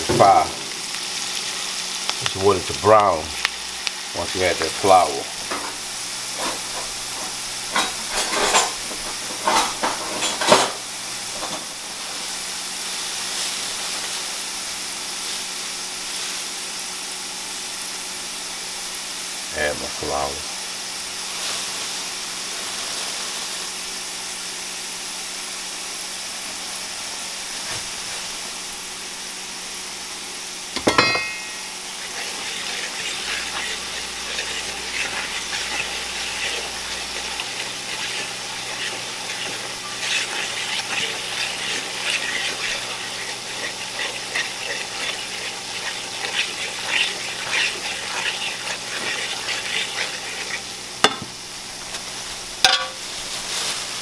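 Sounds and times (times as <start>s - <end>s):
onions sizzling in frying grease: 0.0s - 54.0s
fork scraping and tapping pan: 6.4s - 10.8s, 30.8s - 51.3s.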